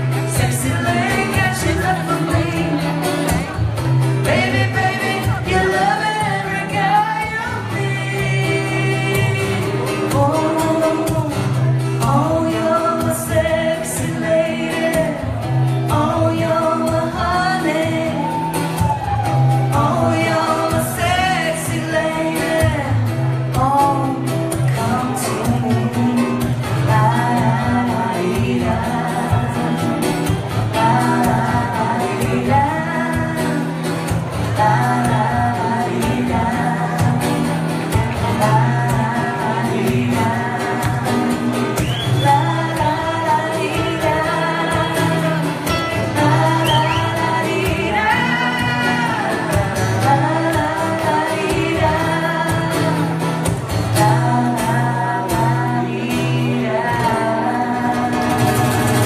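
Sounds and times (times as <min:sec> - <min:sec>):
guitar accompaniment: 0:00.0 - 0:59.0
person singing: 0:00.0 - 0:59.0.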